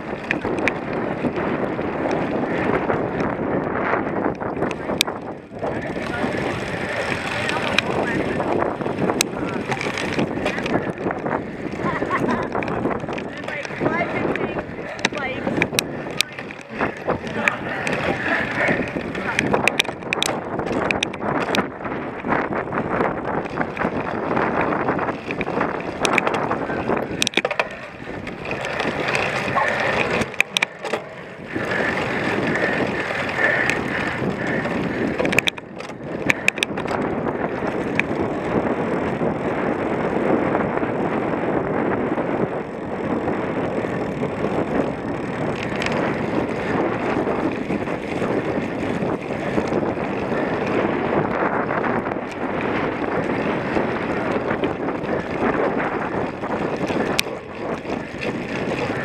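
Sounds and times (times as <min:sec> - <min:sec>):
bike rattling over rough ground: 0:00.0 - 0:59.0
wind rushing over microphone: 0:00.0 - 0:59.0
sharp clicks and knocks: 0:18.9 - 0:21.7, 0:25.2 - 0:31.2, 0:35.1 - 0:37.1.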